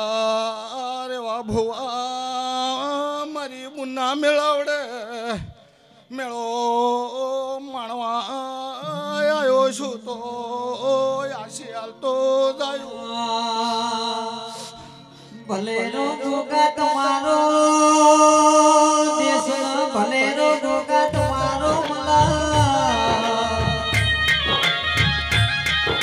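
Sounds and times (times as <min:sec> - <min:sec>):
man singing folk song: 0:06.1 - 0:23.9
drums: 0:21.0 - 0:26.0.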